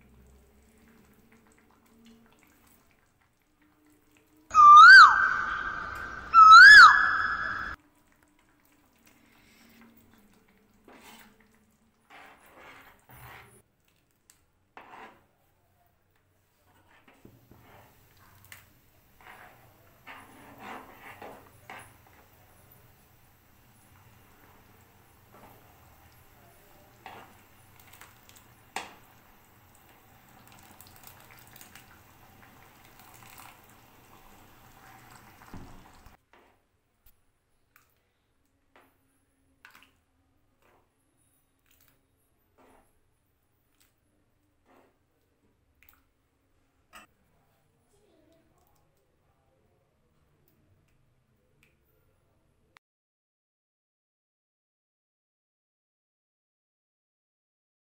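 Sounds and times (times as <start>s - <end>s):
soup splashing and dripping: 0.3s - 7.0s, 27.4s - 36.2s
ladle stirring thick soup: 8.2s - 14.2s, 26.9s - 29.0s.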